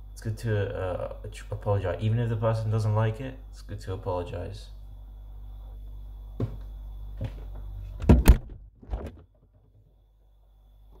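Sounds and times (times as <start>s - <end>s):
faint steady hum: 0.0s - 11.0s
fridge door thudding shut: 8.0s - 9.6s.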